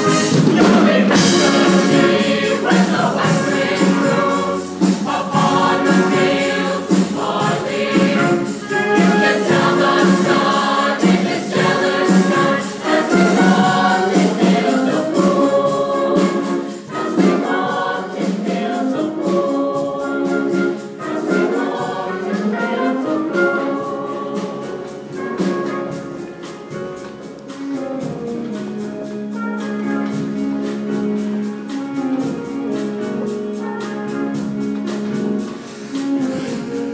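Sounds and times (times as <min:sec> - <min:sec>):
mixed choir singing: 0:00.0 - 0:26.5.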